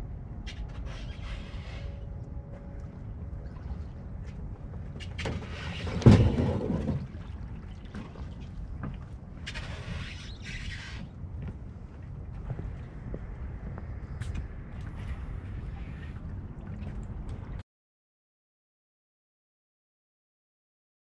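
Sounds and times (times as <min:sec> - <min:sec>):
boat hull thump and splash: 0:03.1 - 0:11.2, 0:15.0 - 0:17.6
low rumble: 0:11.2 - 0:17.6.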